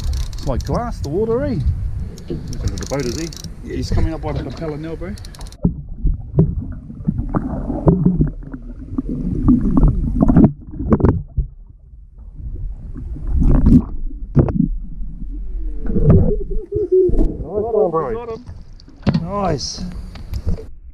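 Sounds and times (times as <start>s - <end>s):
knocks and splashes: 3.9s - 11.6s, 18.3s - 19.6s
low rumble: 5.5s - 20.9s
water gurgling underwater: 5.6s - 19.0s.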